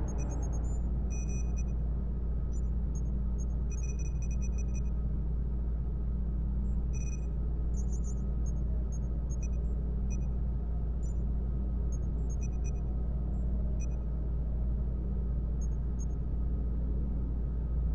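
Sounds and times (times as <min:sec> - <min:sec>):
deep hum: 0:00.0 - 0:01.8.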